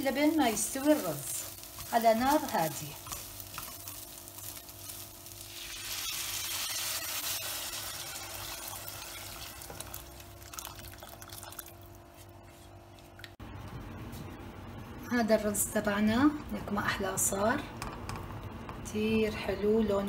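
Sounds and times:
spatula stirring rice: 0.0 - 5.5
water poured into hot pot: 7.8 - 11.8.

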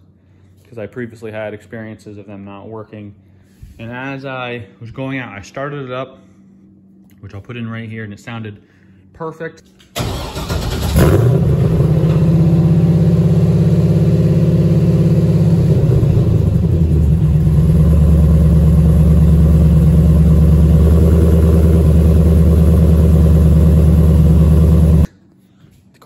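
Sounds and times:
car engine cranking and idling: 10.0 - 25.1.

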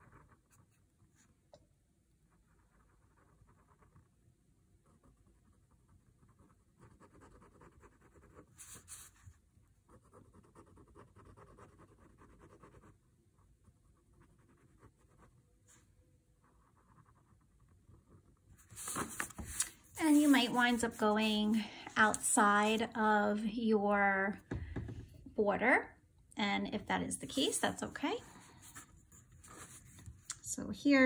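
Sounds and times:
pen scratching on paper: 0.0 - 1.3, 2.3 - 4.2, 4.8 - 15.8, 16.4 - 21.1.

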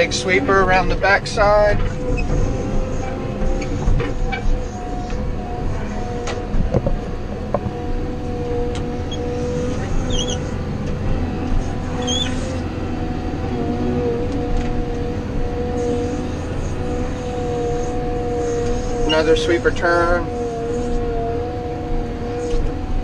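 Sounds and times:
diesel engine running: 0.0 - 23.0
steady whine: 0.0 - 23.0
knocks and rattles: 6.6 - 7.7.

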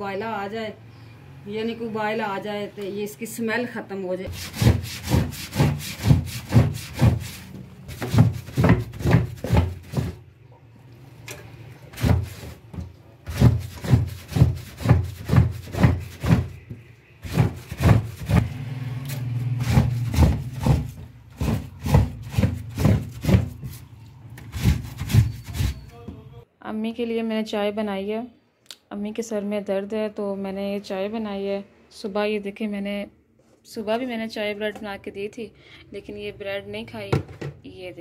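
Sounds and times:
wet cloth scrubbed on drainboard: 4.3 - 10.2, 11.9 - 18.5, 19.4 - 25.8.

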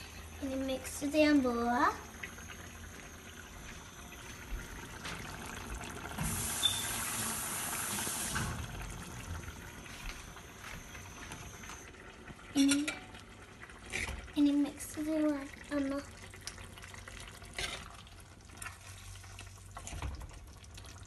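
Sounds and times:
curry hissing in pot: 5.6 - 8.6.

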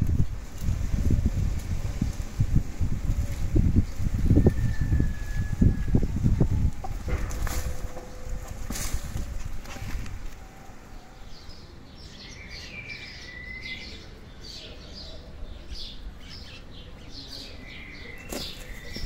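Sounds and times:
birds chirping: 0.0 - 19.0
whistled bird note: 12.7 - 14.0.

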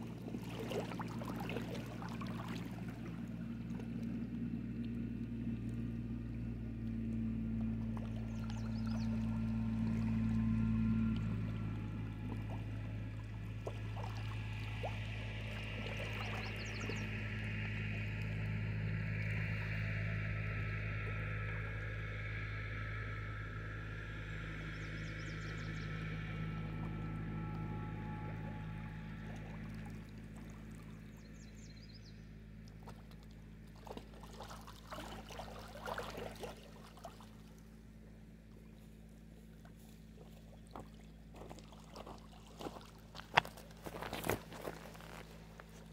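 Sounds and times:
waves lapping on rocky shore: 0.0 - 4.6, 6.9 - 18.3, 33.8 - 37.5, 40.7 - 45.9
steady low hum: 0.0 - 45.9.

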